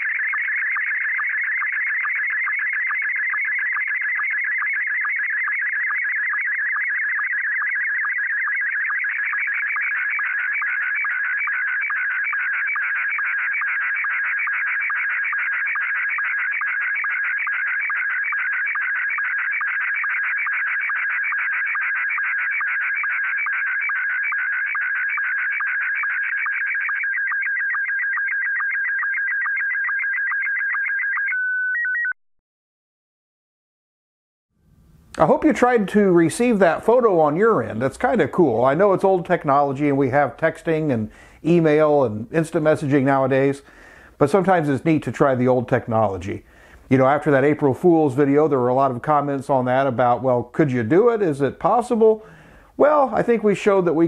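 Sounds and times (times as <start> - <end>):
warbling electronic signal tones: 0.0 - 32.2.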